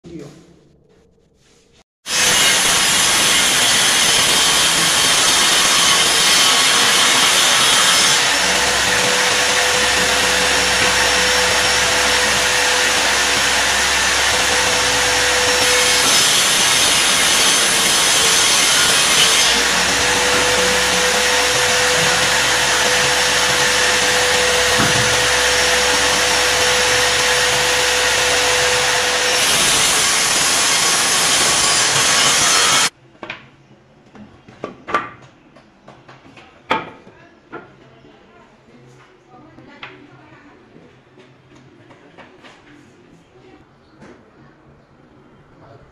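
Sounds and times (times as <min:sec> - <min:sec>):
circular saw cutting wood: 0:02.1 - 0:33.0.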